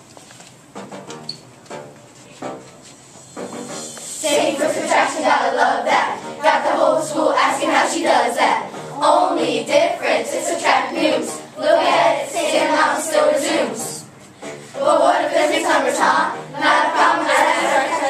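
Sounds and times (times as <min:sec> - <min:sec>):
children rapping in unison: 0:03.6 - 0:18.0.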